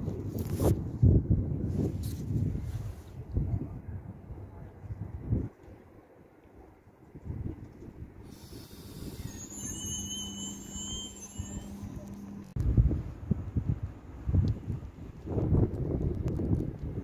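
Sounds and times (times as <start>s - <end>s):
wind buffeting microphone: 0.0s - 10.0s, 11.4s - 17.0s
low hum: 8.2s - 14.9s
high-pitched metallic squeal: 8.3s - 12.6s
train carriages rolling past: 8.3s - 12.6s.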